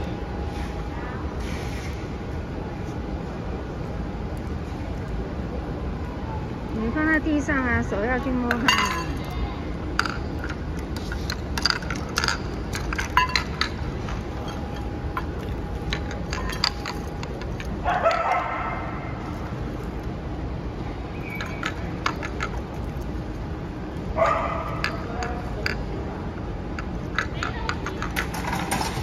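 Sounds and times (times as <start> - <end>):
metal dog bowl clinking: 8.5 - 9.3, 11.6 - 13.8.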